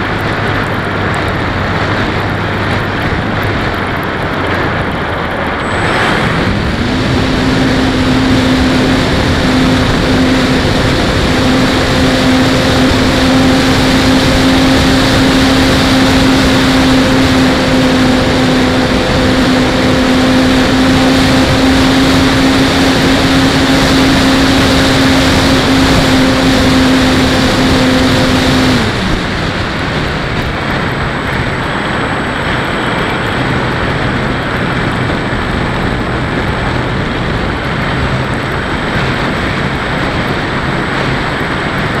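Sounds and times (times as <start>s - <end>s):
electric motor and propeller humming: 0.0s - 42.0s
air rushing over airframe: 4.3s - 41.2s.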